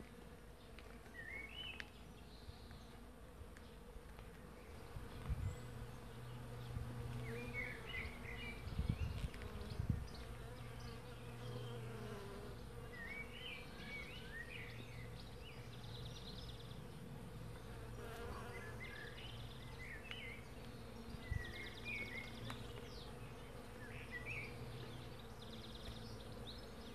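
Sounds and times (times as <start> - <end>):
bees buzzing: 2.9 - 15.9, 16.6 - 19.4.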